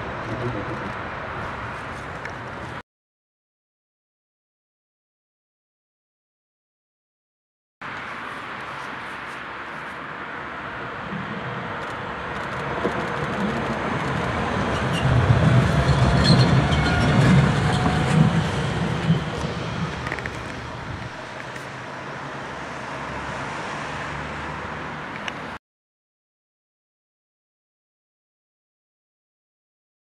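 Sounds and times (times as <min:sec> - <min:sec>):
tram wheels rumbling on rails: 0:11.0 - 0:22.6.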